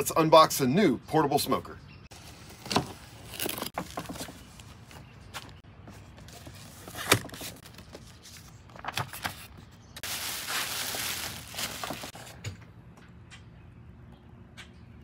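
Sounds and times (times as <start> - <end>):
plastic wrap rustling: 10.0 - 12.3.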